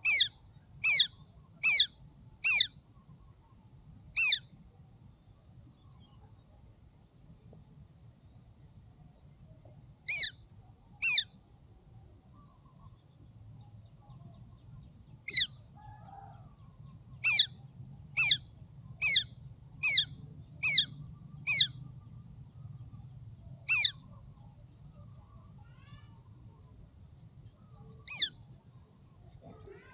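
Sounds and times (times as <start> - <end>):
small bird shrill calls: 0.0 - 2.8, 4.2 - 4.5, 10.1 - 11.4, 15.2 - 16.3, 17.2 - 17.6, 18.2 - 21.8, 23.6 - 24.0, 28.0 - 28.4.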